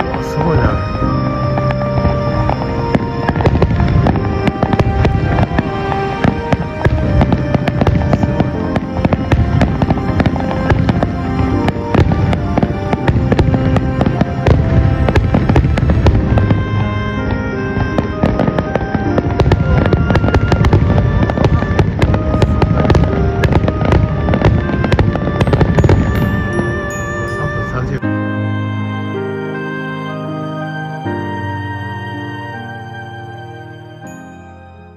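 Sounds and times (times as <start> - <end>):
music playing: 0.0 - 34.9
firework shells bursting: 1.4 - 27.9.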